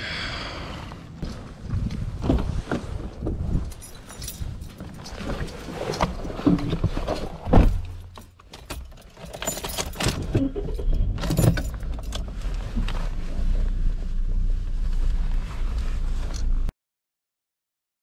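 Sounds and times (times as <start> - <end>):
keys jangling in ignition: 3.6 - 5.7, 7.8 - 12.3
car engine starting and idling: 7.6 - 16.7.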